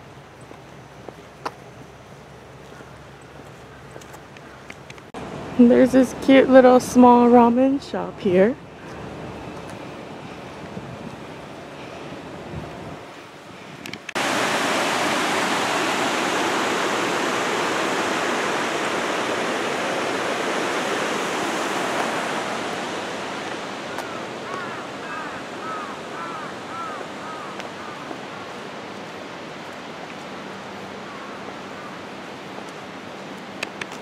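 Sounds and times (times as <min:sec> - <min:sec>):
rushing water: 0:11.4 - 0:34.0.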